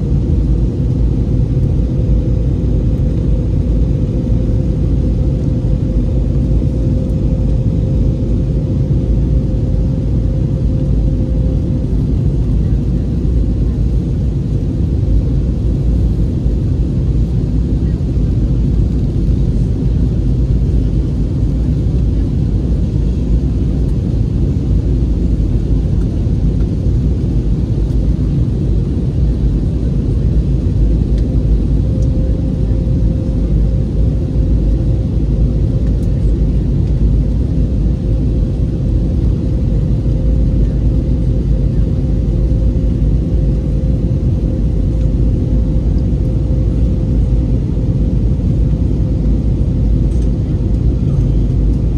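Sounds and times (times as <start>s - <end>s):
airliner cabin jet engine drone: 0.0s - 51.9s
faint steady hum: 31.0s - 41.0s.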